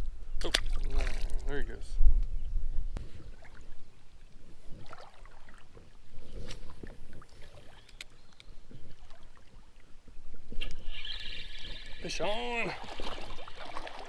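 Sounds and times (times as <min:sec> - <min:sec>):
creek water rippling: 0:03.0 - 0:14.0.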